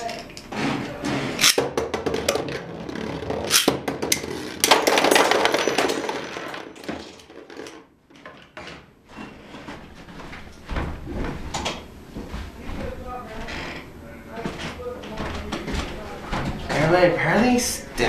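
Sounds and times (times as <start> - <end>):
plastic pieces rattling and clicking: 2.2 - 8.4.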